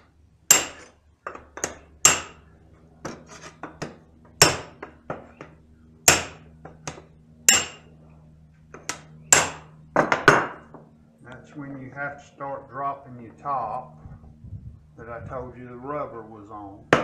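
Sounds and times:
hammer striking metal: 0.5 - 2.4, 3.8 - 5.0, 6.0 - 7.9, 8.8 - 10.6.

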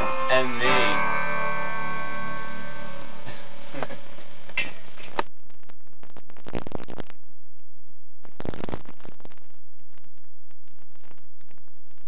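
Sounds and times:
music track: 0.0 - 4.2.

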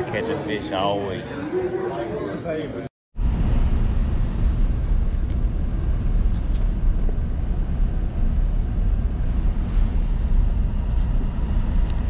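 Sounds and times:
road and engine rumble in cabin: 3.2 - 12.0.

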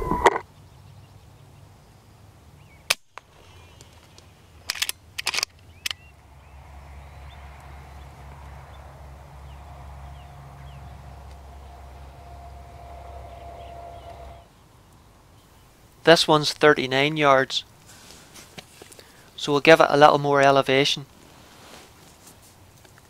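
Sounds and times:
thin hum: 8.2 - 14.5.

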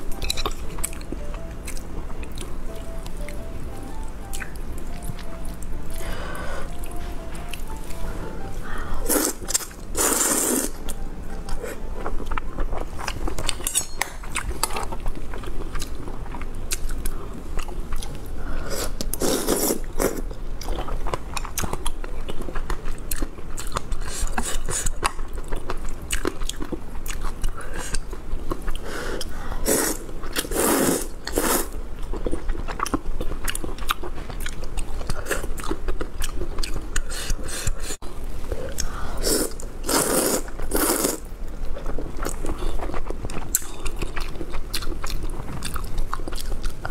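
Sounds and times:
slurping noodles: 9.0 - 10.8, 18.7 - 20.2, 29.6 - 31.8, 39.2 - 41.3
wet chewing: 38.7 - 46.9.

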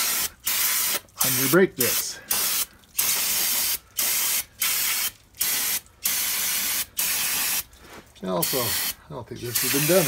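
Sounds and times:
aerosol spray hissing: 8.5 - 10.0.

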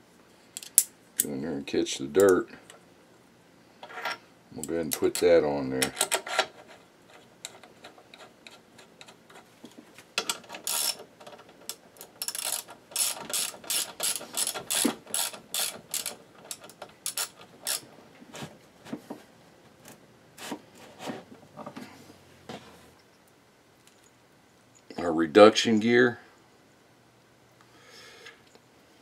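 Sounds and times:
ratchet wrench clicking: 10.6 - 11.0, 11.7 - 17.8.

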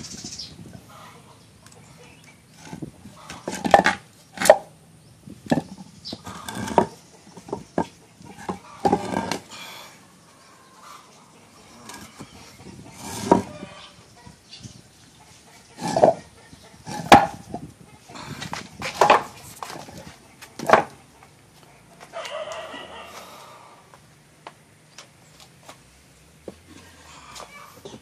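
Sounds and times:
wooden knocks and clunks: 2.6 - 4.6, 5.4 - 9.4, 12.9 - 13.7, 15.8 - 16.2, 16.9 - 17.7, 18.4 - 21.0.

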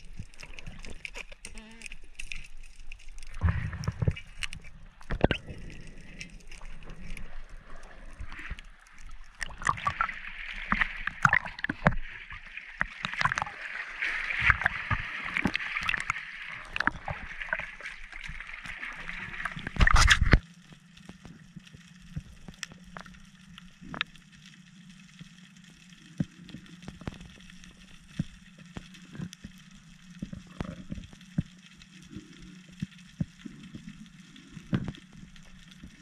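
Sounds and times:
underwater clicks and knocks: 0.0 - 7.2, 8.2 - 13.6, 14.4 - 18.4, 19.4 - 20.4, 34.6 - 35.2
loud underwater rush: 3.4 - 8.6, 9.3 - 20.4.

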